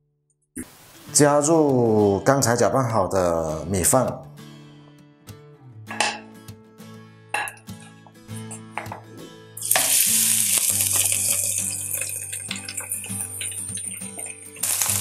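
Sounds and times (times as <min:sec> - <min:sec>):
rice sizzling in hot oil: 0:09.6 - 0:15.0.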